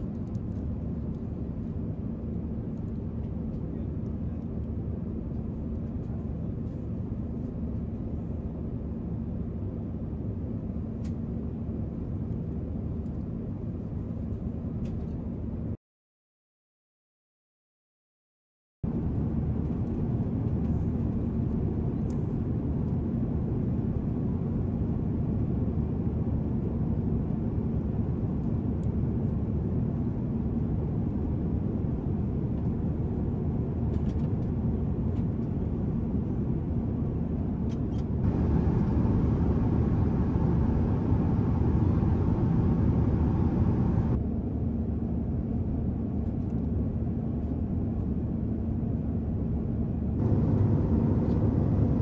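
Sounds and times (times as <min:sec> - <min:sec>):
airliner cabin rumble: 0:18.9 - 0:44.3, 0:46.0 - 0:52.0.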